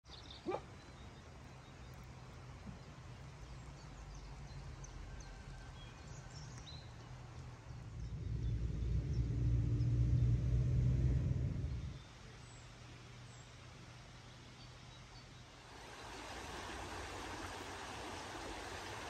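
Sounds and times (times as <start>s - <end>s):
low rumble: 7.6s - 12.2s.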